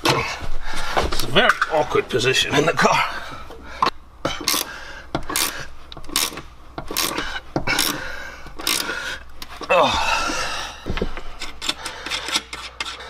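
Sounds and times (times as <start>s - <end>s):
wrench rasping strokes: 4.4s - 9.3s, 11.4s - 13.0s.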